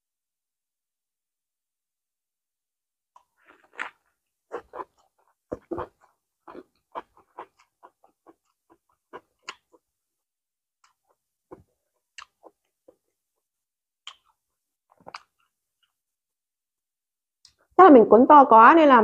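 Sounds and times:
wet smacks and clicks: 3.2 - 9.8, 10.8 - 13.2, 14.0 - 16.0
person chewing food: 3.2 - 9.9, 10.8 - 13.4, 14.0 - 16.0.

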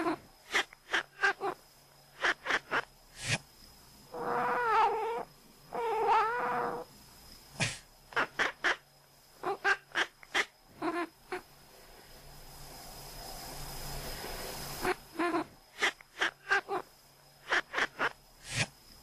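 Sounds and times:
cat crying: 4.2 - 5.2, 5.8 - 6.8.

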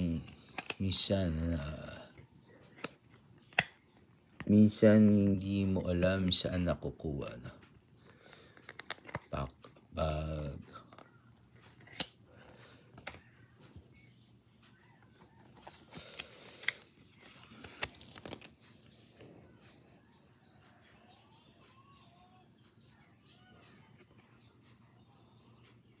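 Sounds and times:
plastic card holder clicks and scraping: 0.2 - 0.8, 2.7 - 4.5, 8.6 - 9.3, 10.9 - 12.2
faint bird chirps: 9.4 - 17.7, 18.6 - 26.0.

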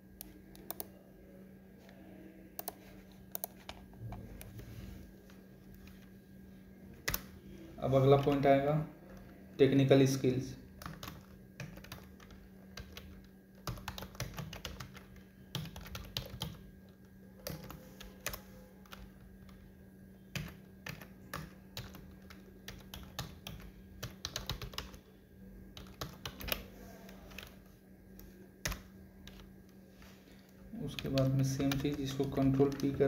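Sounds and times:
faint low hum: 0.0 - 33.0
typing on computer keyboard: 0.2 - 0.9, 2.6 - 4.5, 7.0 - 7.3, 10.7 - 25.1, 25.7 - 27.6, 28.6 - 29.5, 30.9 - 33.0.

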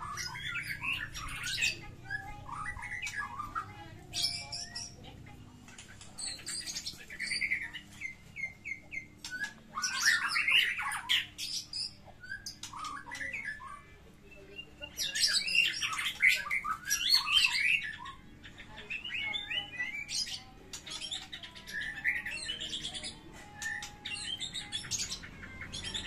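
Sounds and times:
songbirds whistling and chipping: 0.0 - 26.0.

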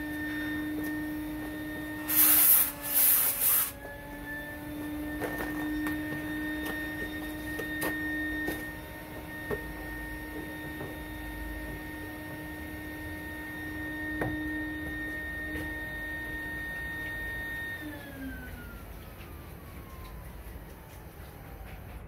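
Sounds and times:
paint sprayer turbine whine: 0.0 - 22.0
spray gun hissing: 2.0 - 3.8.

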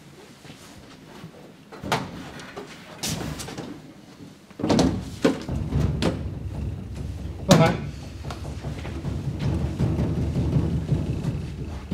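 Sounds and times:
knocks and clunks on cabinet: 4.6 - 11.9.

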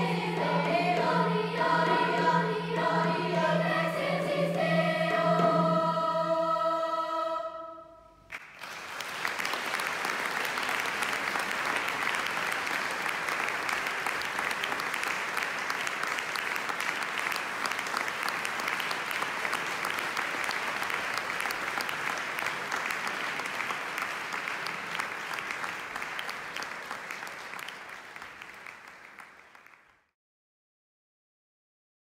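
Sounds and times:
audience applauding: 8.3 - 30.1.

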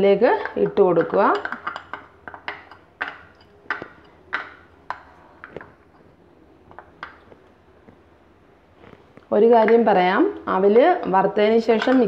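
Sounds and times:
metal spoon tapping a pan: 0.4 - 5.7, 11.0 - 12.0.

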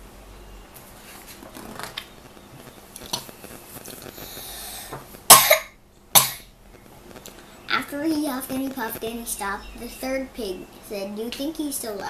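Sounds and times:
boy coughing: 5.3 - 6.4.

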